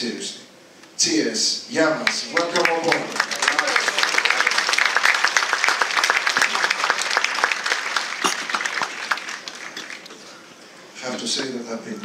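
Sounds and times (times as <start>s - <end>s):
audience applauding: 2.0s - 10.5s.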